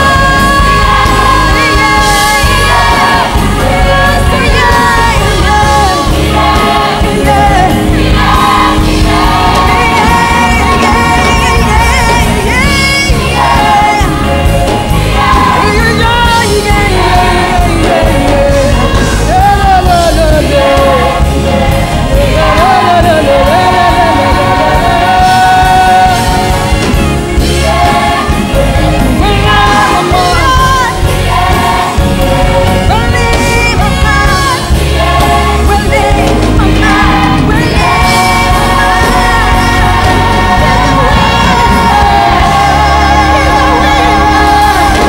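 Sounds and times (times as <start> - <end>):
choir singing: 0.0 - 45.0
instrumental accompaniment: 0.0 - 45.0.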